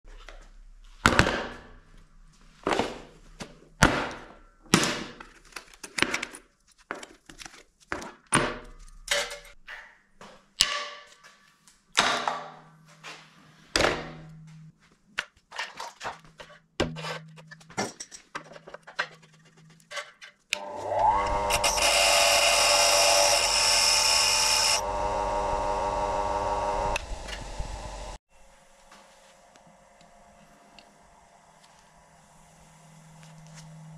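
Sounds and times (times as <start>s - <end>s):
electric grinder grinding: 20.6s - 28.2s.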